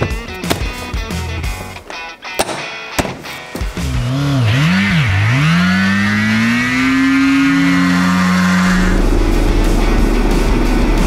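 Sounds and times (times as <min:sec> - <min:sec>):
motorcycle engine revving: 0:03.5 - 0:11.0.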